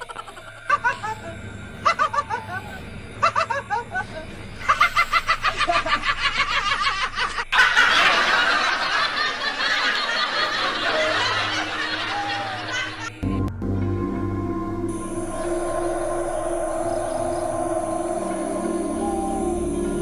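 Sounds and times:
human laughter in pulses: 0:00.0 - 0:13.2
people screaming and shouting: 0:09.9 - 0:13.1, 0:15.0 - 0:20.0.

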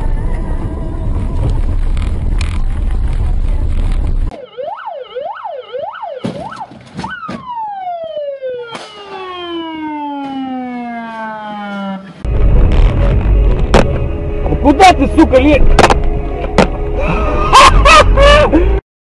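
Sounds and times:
rumbling vehicle noise: 0:00.0 - 0:04.4, 0:08.7 - 0:18.8
emergency vehicle siren: 0:04.3 - 0:12.4, 0:16.9 - 0:18.8.

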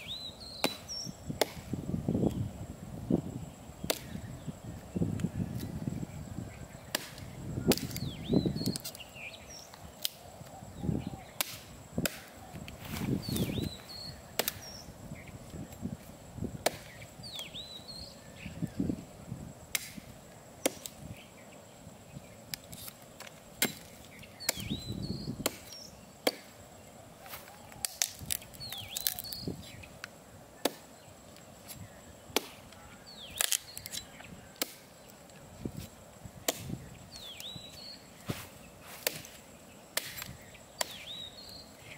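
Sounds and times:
hatchet chopping log: 0:00.6 - 0:01.7, 0:03.8 - 0:04.1, 0:06.9 - 0:08.0, 0:11.4 - 0:12.3, 0:14.4 - 0:14.7, 0:16.6 - 0:17.0, 0:19.7 - 0:20.0, 0:20.6 - 0:20.9, 0:23.6 - 0:24.8, 0:25.4 - 0:26.6, 0:30.6 - 0:30.9, 0:32.3 - 0:32.6, 0:34.6 - 0:34.8, 0:36.4 - 0:36.8, 0:39.0 - 0:39.4, 0:40.0 - 0:41.1.

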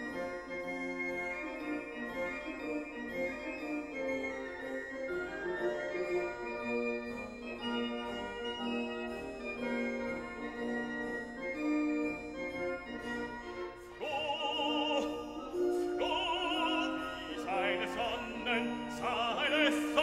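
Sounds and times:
operatic voice singing with vibrato: 0:14.0 - 0:20.0.

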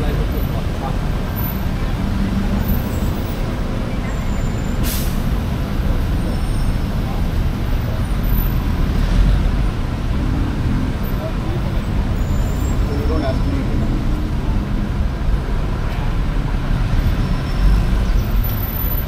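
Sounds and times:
traffic rumble: 0:00.0 - 0:19.0
short sharp hiss: 0:04.8 - 0:05.3.

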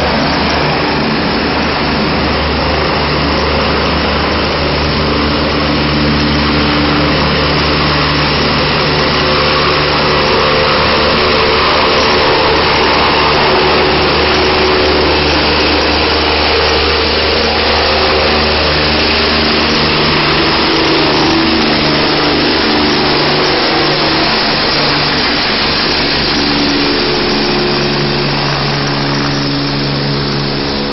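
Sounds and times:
helicopter turbine and rotor: 0:00.0 - 0:30.9.

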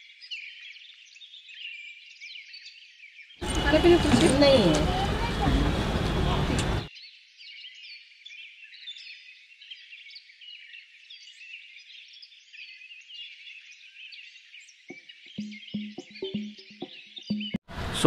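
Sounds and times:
small birds chirping: 0:00.0 - 0:17.6
music beat: 0:15.4 - 0:17.7.

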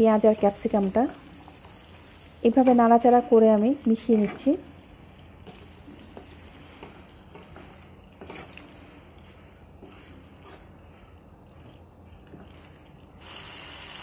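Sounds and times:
spatula scraping and squishing food: 0:03.9 - 0:13.2.

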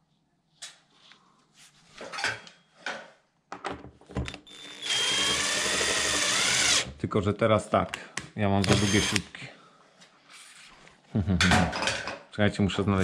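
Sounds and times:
cordless drill driving screw: 0:04.2 - 0:06.9, 0:08.6 - 0:09.3.

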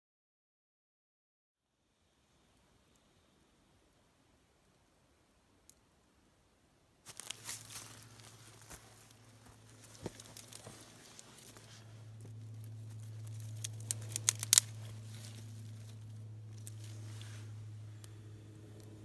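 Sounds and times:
steady low hum: 0:02.1 - 0:19.0
dry twigs rustling and cracking: 0:07.0 - 0:19.0
twigs snapping: 0:07.1 - 0:19.0.

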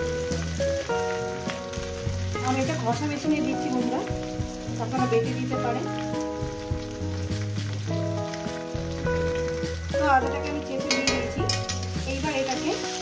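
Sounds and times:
music with held notes: 0:00.0 - 0:13.0
vegetables sizzling in oil: 0:00.0 - 0:13.0.

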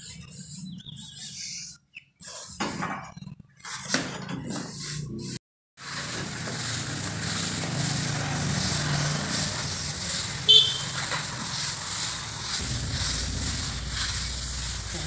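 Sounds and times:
float scraping cement plaster: 0:03.6 - 0:15.0.

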